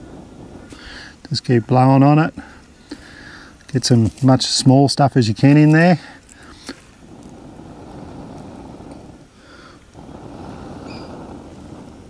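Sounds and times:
person blowing on tinder: 0:00.0 - 0:01.3, 0:06.0 - 0:12.0.

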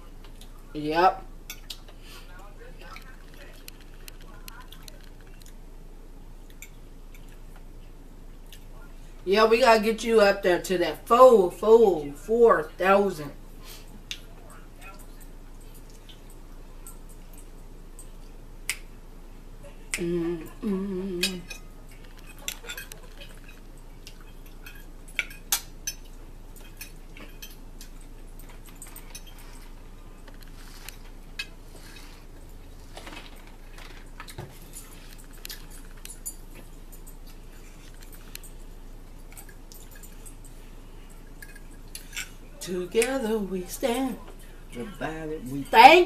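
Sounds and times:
forks clicking on plates: 0:21.2 - 0:29.6, 0:41.3 - 0:42.4.

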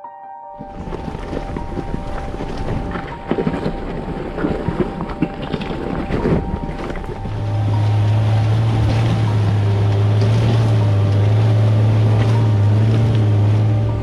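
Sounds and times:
car engine running: 0:00.7 - 0:14.0.

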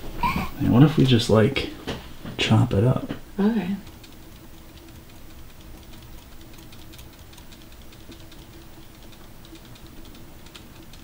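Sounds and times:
faint steady hum: 0:00.0 - 0:11.0
stick clicking in wet epoxy: 0:03.8 - 0:11.0.

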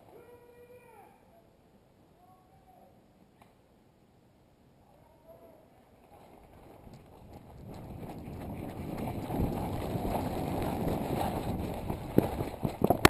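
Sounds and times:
wind buffeting microphone: 0:06.5 - 0:13.0.

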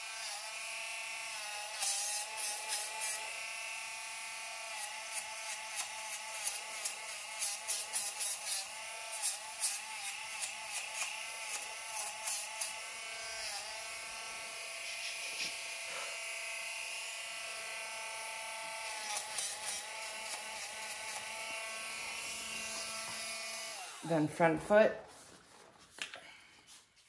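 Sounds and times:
nail grinder whining: 0:00.0 - 0:24.3
scratchy grinding of nail: 0:01.4 - 0:03.3, 0:04.7 - 0:13.8, 0:18.8 - 0:23.8.

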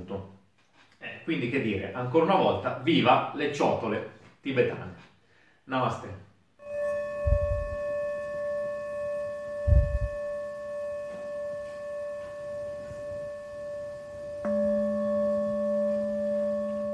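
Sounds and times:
singing bowl ringing: 0:06.6 - 0:16.9.

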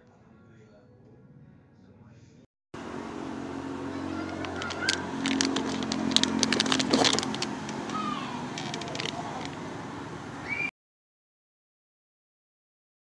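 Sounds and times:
low engine-like hum: 0:02.8 - 0:10.7
plastic packaging crinkling: 0:04.2 - 0:09.6.

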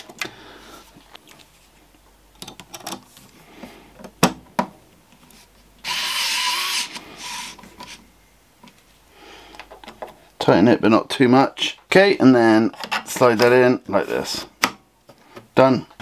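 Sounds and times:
electric screwdriver running: 0:05.8 - 0:07.6.

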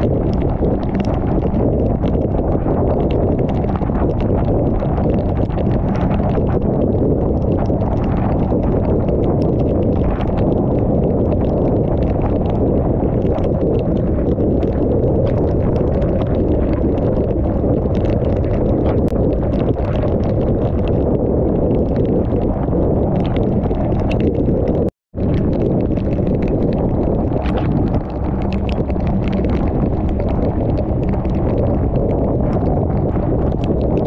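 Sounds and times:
wind and rain roar: 0:00.0 - 0:34.0
raindrops ticking on housing: 0:25.1 - 0:33.8.

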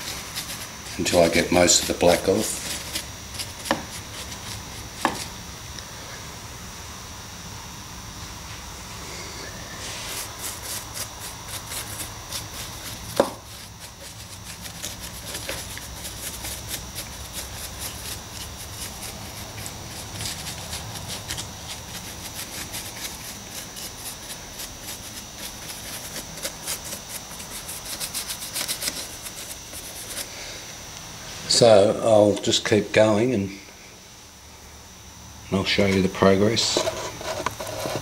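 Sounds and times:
paintbrush scrubbing on plaster: 0:00.0 - 0:05.4, 0:09.8 - 0:30.4.

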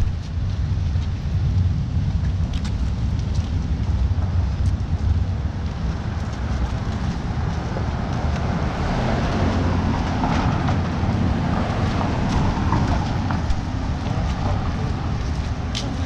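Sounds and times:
road traffic: 0:00.0 - 0:16.0
wind rumble on microphone: 0:00.0 - 0:16.0
van driving past: 0:05.3 - 0:16.0.

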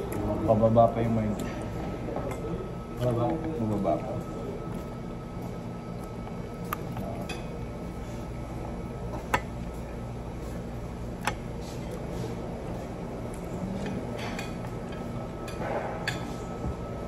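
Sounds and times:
low room hum: 0:00.0 - 0:17.0
cutlery clinking against plates: 0:13.8 - 0:16.5.

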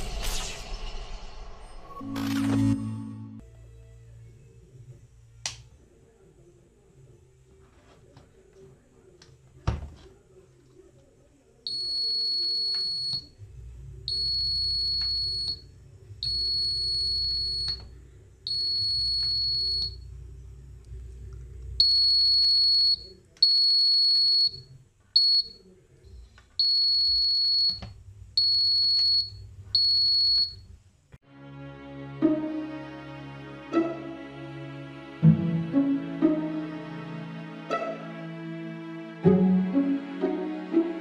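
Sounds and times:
high buzzer beeps: 0:11.7 - 0:13.3, 0:14.1 - 0:17.8, 0:18.5 - 0:20.0, 0:21.8 - 0:25.6, 0:26.6 - 0:30.6.

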